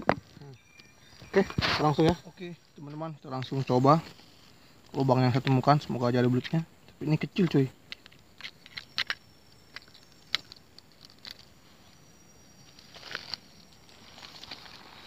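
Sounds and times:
faint high-pitched tone: 0.0s - 4.4s, 8.6s - 15.0s
faint clicks and ticks: 7.8s - 11.5s.

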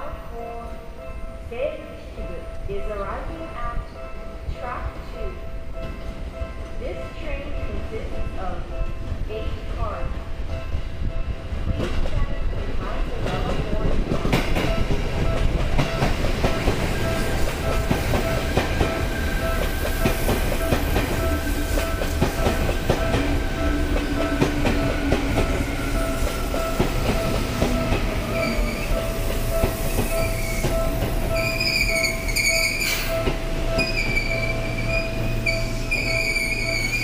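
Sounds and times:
train wheels clicking over rail joints: 11.7s - 37.0s
wheels squealing while braking: 31.3s - 33.1s, 33.8s - 37.0s.

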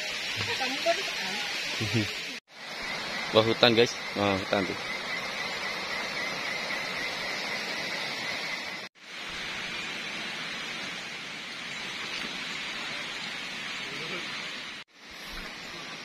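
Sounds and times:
high whine: 0.0s - 12.1s
forest ambience hiss: 0.0s - 16.0s.

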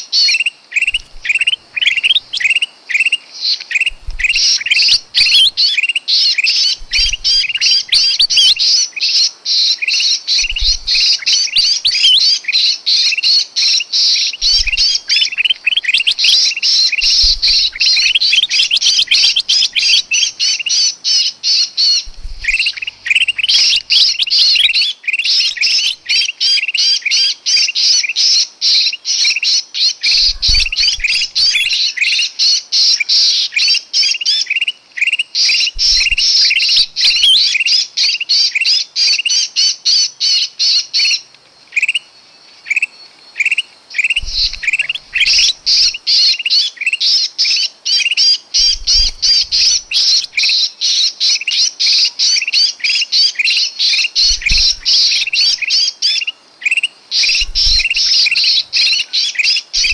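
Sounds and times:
bird shrill distress calls: 0.0s - 59.9s
faint low thumps: 10.4s - 11.1s, 17.0s - 18.3s, 22.0s - 23.9s, 44.2s - 46.0s.

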